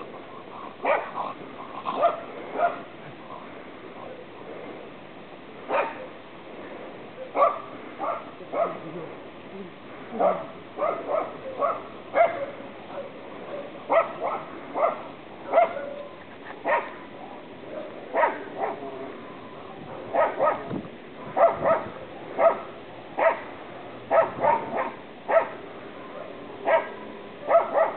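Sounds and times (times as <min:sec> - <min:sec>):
dog barking: 0:00.8 - 0:01.2, 0:01.9 - 0:02.9, 0:05.7 - 0:06.2, 0:07.2 - 0:08.8, 0:10.2 - 0:17.0, 0:17.7 - 0:18.9, 0:19.9 - 0:23.5, 0:24.1 - 0:27.9.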